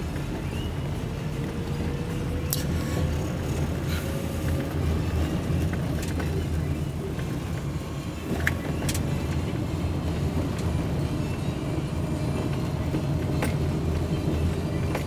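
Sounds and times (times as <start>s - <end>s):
car engine and road rumble: 0.0s - 15.0s.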